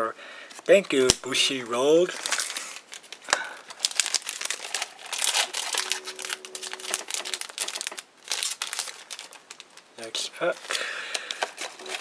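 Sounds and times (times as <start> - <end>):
foil packs crinkling: 0.5 - 12.0
low hum: 5.8 - 7.4.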